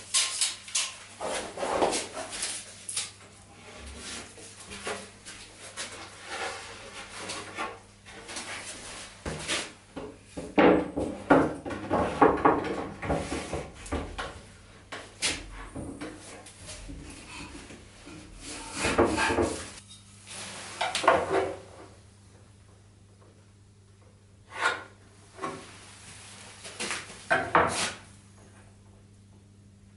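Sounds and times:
wood knocking and scraping on wood: 0:09.2 - 0:19.8.

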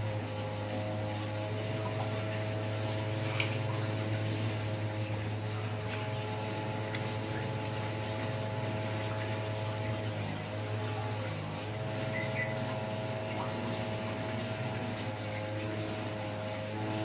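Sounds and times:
electric hair clippers buzzing: 0:00.0 - 0:17.0.

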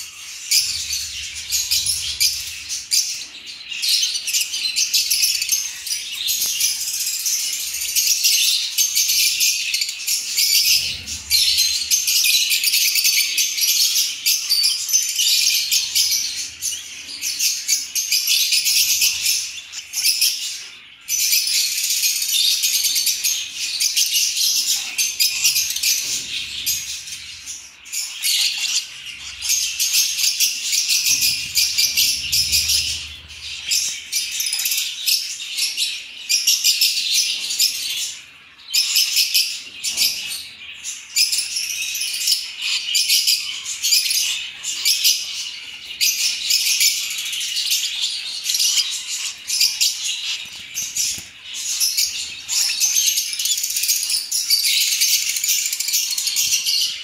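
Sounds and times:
lovebird chicks chattering shrilly: 0:00.0 - 0:07.8, 0:21.4 - 0:35.4, 0:38.8 - 0:57.0.

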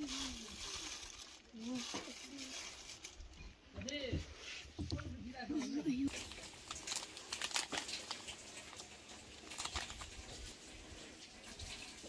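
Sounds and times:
small clicks and rustles: 0:06.1 - 0:10.6.

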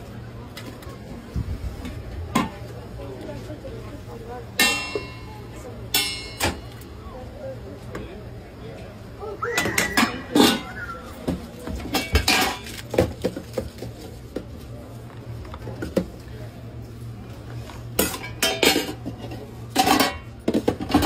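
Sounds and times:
metal lids and spoon clinking: 0:19.8 - 0:20.3.

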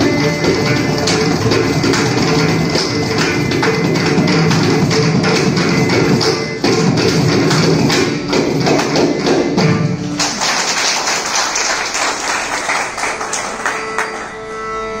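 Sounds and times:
hand drums playing: 0:00.0 - 0:10.2
audience applause: 0:10.2 - 0:14.4.

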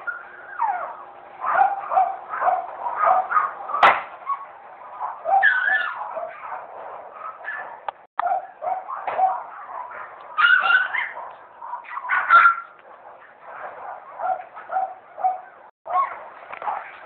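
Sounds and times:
puppy whimpering and yipping: 0:00.0 - 0:03.5, 0:05.1 - 0:06.6, 0:10.4 - 0:12.8.

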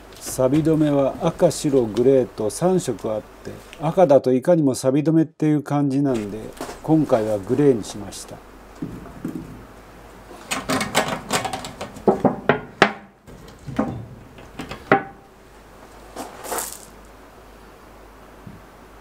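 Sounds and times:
metallic clicks and knocks: 0:10.4 - 0:15.3.

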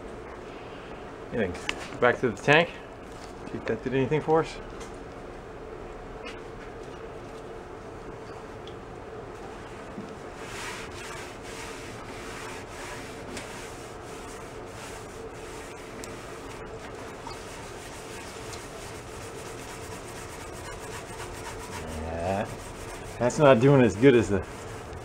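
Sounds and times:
scouring pad scrubbing metal: 0:10.4 - 0:25.0.

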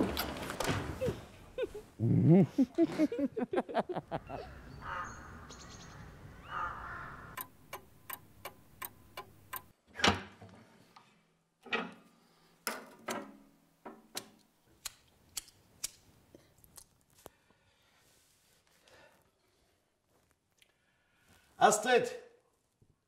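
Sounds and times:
clock ticking: 0:07.4 - 0:09.7.

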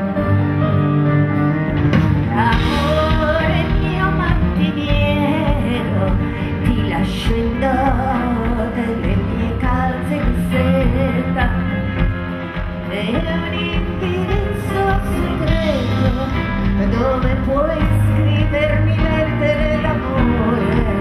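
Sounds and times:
live band playing: 0:00.0 - 0:21.0
woman singing: 0:02.2 - 0:21.0.

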